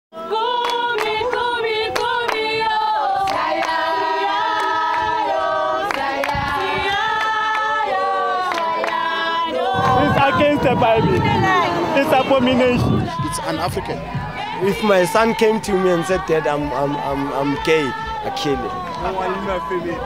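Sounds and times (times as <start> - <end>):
group singing a capella: 0.2 - 20.0
hand claps: 0.6 - 2.5, 3.3 - 3.8, 5.9 - 6.6, 8.5 - 9.0.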